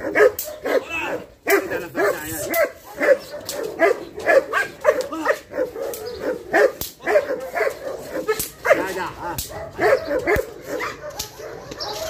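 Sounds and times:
dogs barking and yipping: 0.0 - 12.0.

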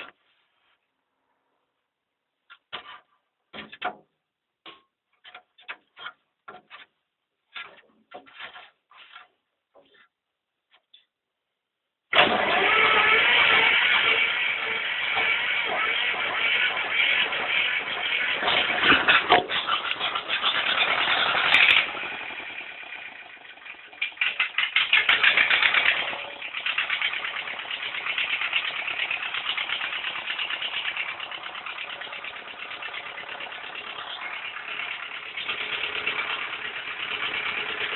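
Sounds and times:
starter motor cranking: 12.1 - 37.9
diesel engine idling: 12.5 - 24.2, 25.0 - 37.9.

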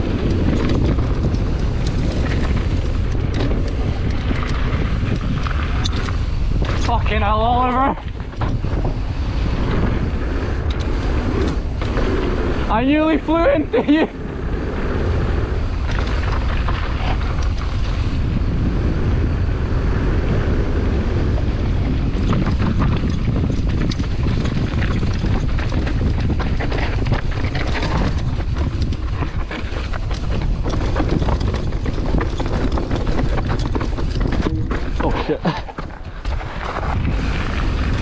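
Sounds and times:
bike knocking and rattling: 0.0 - 38.0
wind rushing over microphone: 0.0 - 38.0
tyres rumbling over rock: 19.9 - 38.0.

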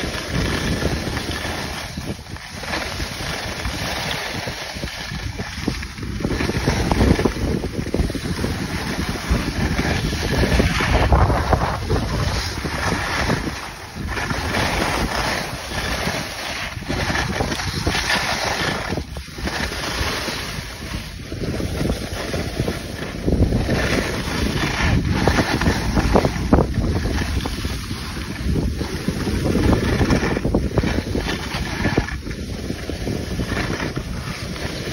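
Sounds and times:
skis sliding on snow: 0.0 - 34.9
wind buffeting microphone: 0.0 - 34.9.

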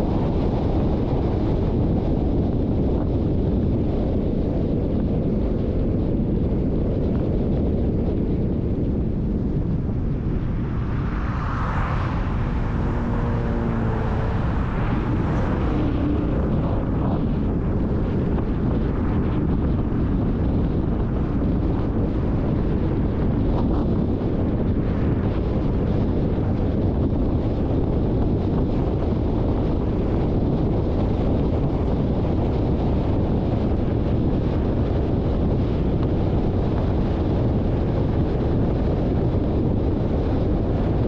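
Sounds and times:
car road rumble: 0.0 - 41.0
wind buffeting microphone: 0.0 - 41.0
passing engine: 9.2 - 28.5.

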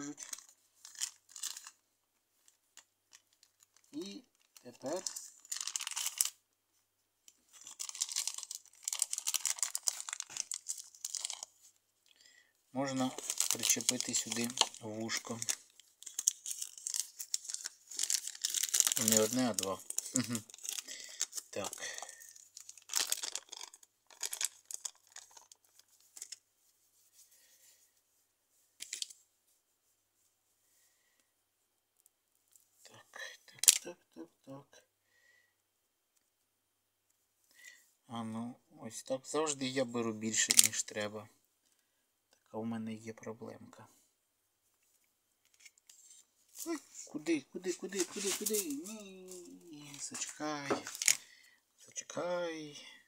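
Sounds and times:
plastic bag crinkling: 0.1 - 1.8, 3.1 - 6.4, 7.5 - 11.7, 12.8 - 26.4, 47.7 - 51.3
hands crackling modelling clay: 47.6 - 51.1.

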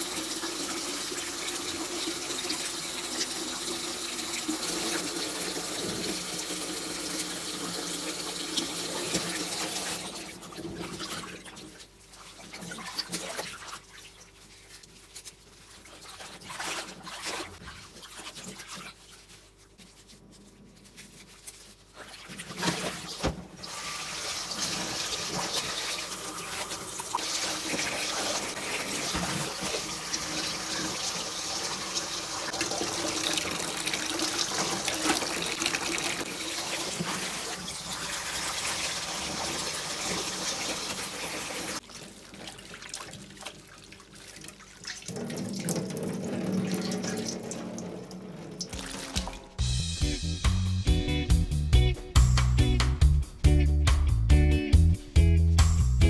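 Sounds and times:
water sloshing in a metal bowl: 9.0 - 20.0, 32.5 - 49.6
tap running into bowl: 45.2 - 49.6.

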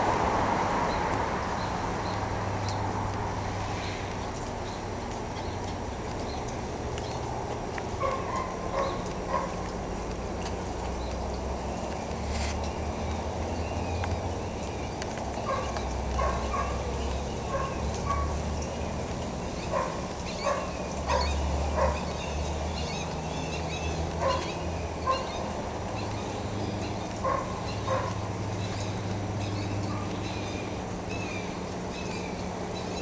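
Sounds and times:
dog barking: 8.0 - 9.7, 15.5 - 16.8, 17.5 - 18.4, 19.7 - 22.1, 24.2 - 24.5, 25.1 - 25.3, 27.2 - 28.2.

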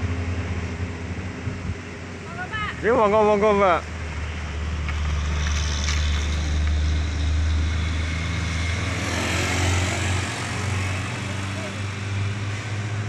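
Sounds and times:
road noise: 0.0 - 13.0
truck engine droning: 0.0 - 13.0.

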